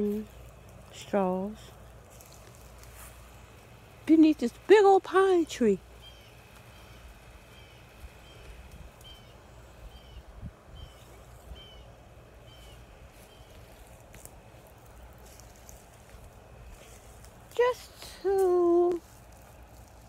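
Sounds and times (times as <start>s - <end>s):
low steady rumble: 0.0s - 20.0s
bird chirping: 5.4s - 14.0s.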